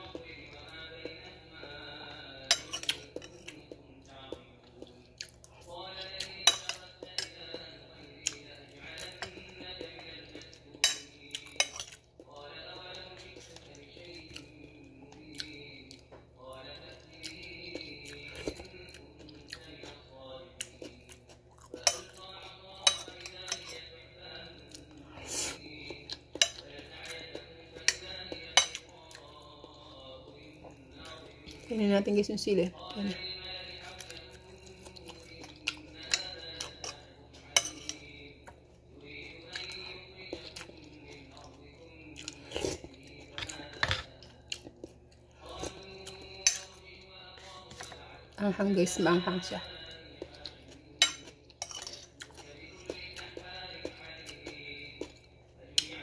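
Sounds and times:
person chewing: 0.0 - 31.7, 32.8 - 48.2, 49.8 - 56.0
metal spoon clinking on plate: 2.4 - 3.5, 6.4 - 7.5, 10.8 - 11.9, 22.8 - 23.9, 36.0 - 38.1, 51.0 - 52.2.

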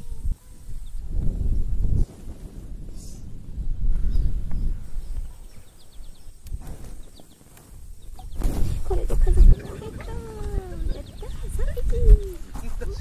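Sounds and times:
wind buffeting microphone: 0.0 - 13.0
high bird chirps: 4.1 - 11.6
wavering bird calls: 5.5 - 12.5.

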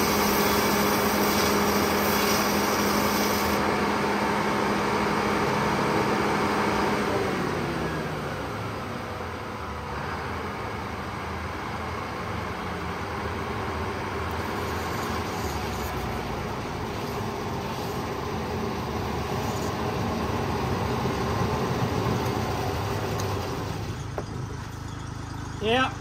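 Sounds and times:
sawmill machinery running: 0.0 - 26.0.

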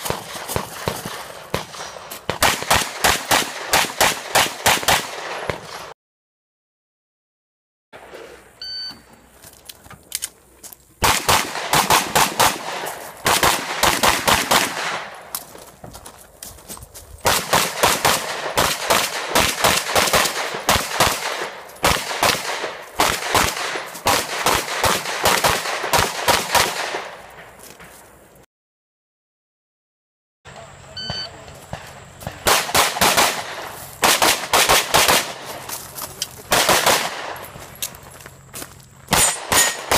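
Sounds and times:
rapid pistol shots: 0.0 - 5.9, 11.0 - 15.2, 17.2 - 27.1, 31.7 - 35.5, 36.5 - 37.4, 39.1 - 39.9
shot timer beep: 8.6 - 9.0, 31.0 - 31.4.

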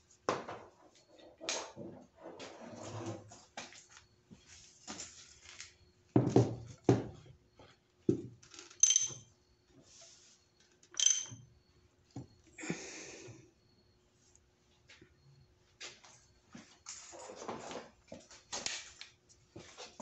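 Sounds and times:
short ringing metal clinks: 8.8 - 9.3, 11.0 - 11.5.

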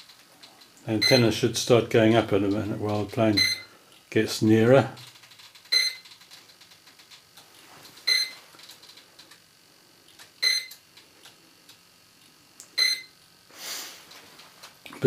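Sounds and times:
short high electronic beeps: 5.7 - 6.0
short hiss: 13.5 - 14.2.

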